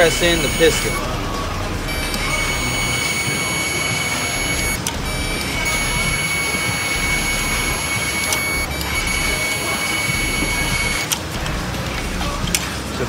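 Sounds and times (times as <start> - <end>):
electric motor whining: 0.0 - 1.1, 1.8 - 11.2.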